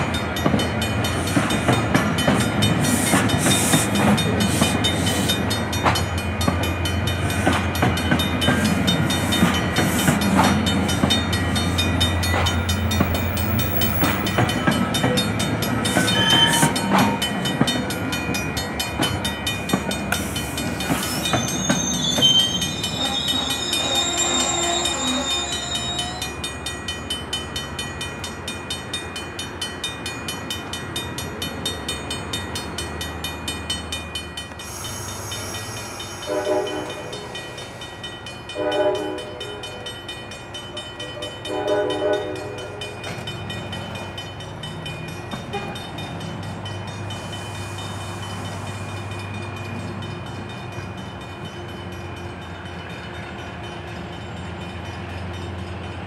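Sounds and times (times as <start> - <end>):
train wheels clattering: 0.0 - 56.0
train wheel squeal: 1.0 - 26.8, 32.6 - 39.8, 45.0 - 56.0
train horn blasts: 36.2 - 37.2, 38.6 - 39.6, 41.5 - 42.6.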